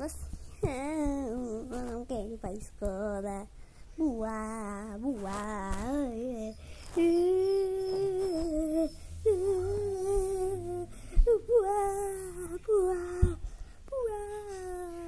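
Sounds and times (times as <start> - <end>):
child humming whine: 4.0 - 15.0.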